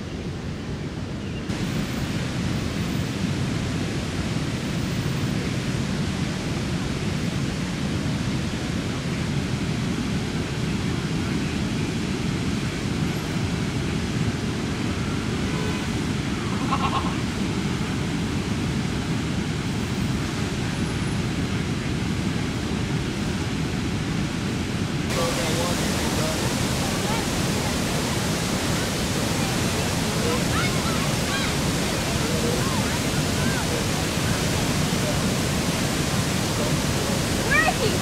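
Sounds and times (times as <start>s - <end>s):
floodwater rushing: 24.7s - 38.0s.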